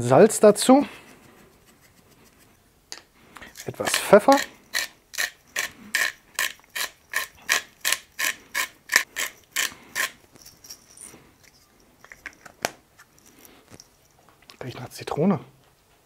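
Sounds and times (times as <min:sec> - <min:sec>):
pepper mill grinding: 0:03.4 - 0:13.8.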